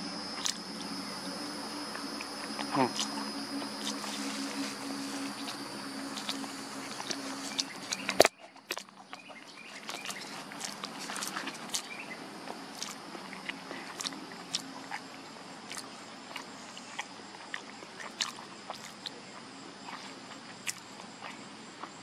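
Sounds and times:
background hiss: 0.0 - 8.3
bird crunching fish flesh: 0.4 - 19.2, 19.8 - 22.0.

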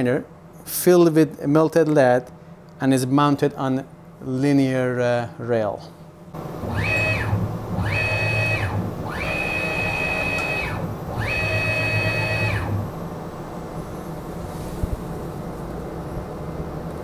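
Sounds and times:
stepper motor whine: 6.4 - 14.4.

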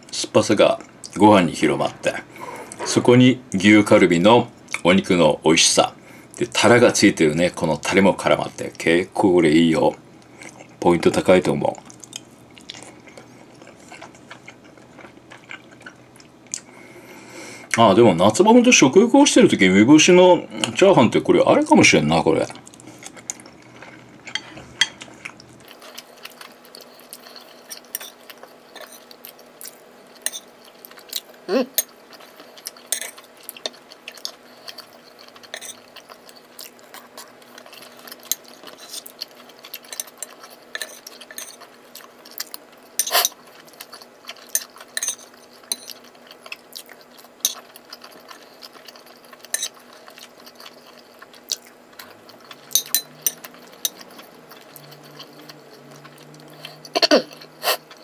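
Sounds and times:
chewing: 11.8 - 16.7, 22.4 - 58.0.

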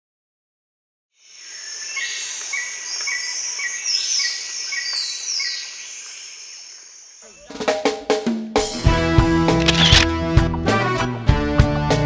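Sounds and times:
high insect drone: 1.2 - 7.6
music with drums: 7.4 - 12.0.

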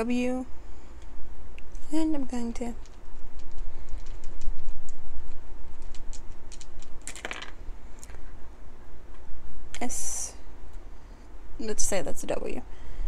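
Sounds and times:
wooden dice clicking in hand: 2.8 - 8.2
dice clattering on table: 5.8 - 8.2.

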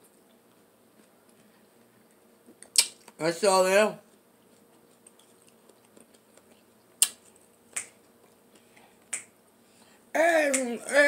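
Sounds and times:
lip smacks while eating: 0.2 - 3.2, 4.4 - 9.4.

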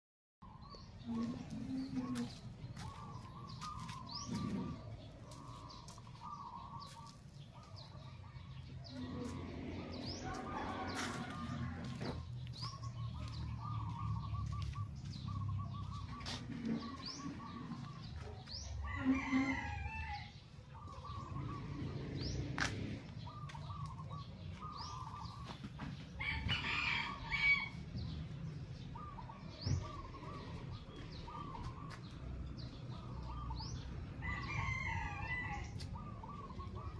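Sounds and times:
small birds chirping: 0.4 - 19.4, 20.4 - 26.4, 28.0 - 36.9
rooster crowing: 10.1 - 12.0, 18.8 - 20.3, 34.2 - 35.8.

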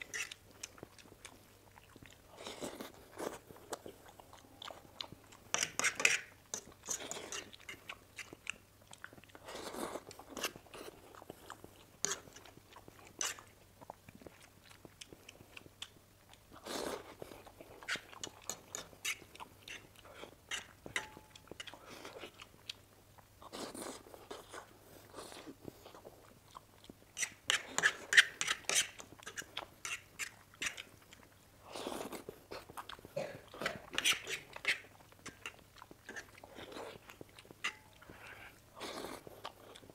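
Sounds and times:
person slurping and chewing noodles: 0.0 - 39.9
fork clicking against plate: 20.5 - 21.7.

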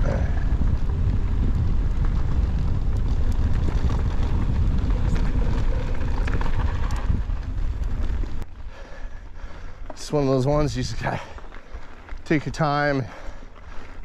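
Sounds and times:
bike tyres ticking and crunching: 0.0 - 14.0
wind rumbling on microphone: 0.0 - 14.0.

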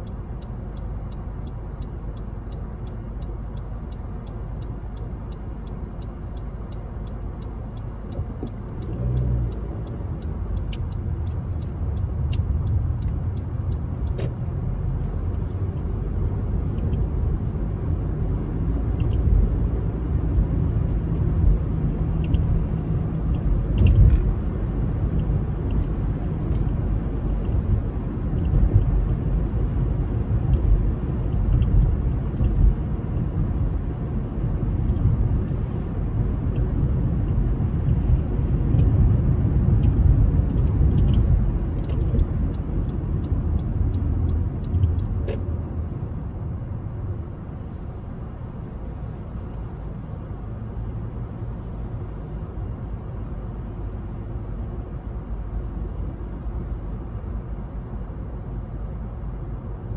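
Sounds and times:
car road rumble: 0.0 - 59.9.

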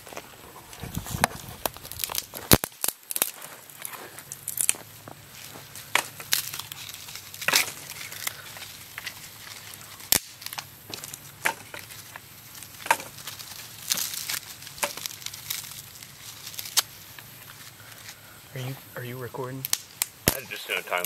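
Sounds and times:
dry leaves rustling and crackling: 0.0 - 21.0
twig snapping: 1.2 - 4.8, 5.8 - 18.2, 19.6 - 20.4.

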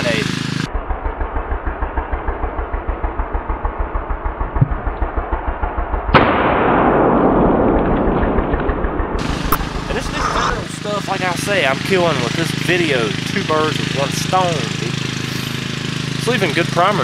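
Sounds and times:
low even throbbing: 0.0 - 17.0
shotgun blast with rumbling echo: 5.7 - 10.0.

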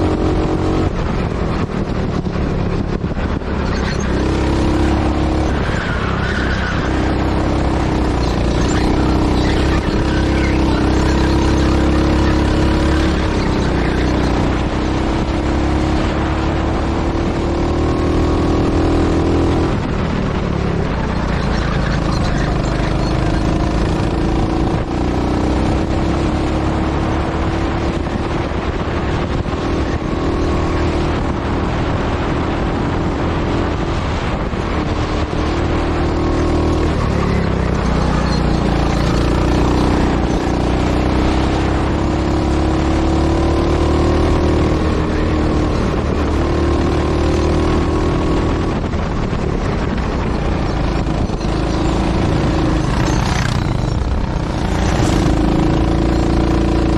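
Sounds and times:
go-kart engine revving: 0.0 - 56.9.

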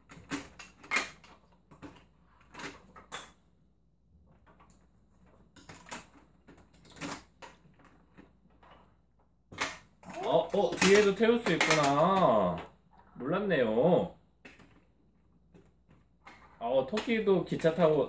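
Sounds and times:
plastic toy pieces clicking: 9.6 - 12.7.

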